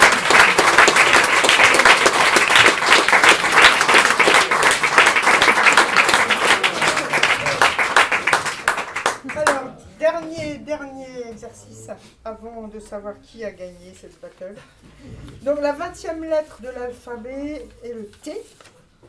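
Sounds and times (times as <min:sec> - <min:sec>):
audience applauding: 0:00.0 - 0:09.7.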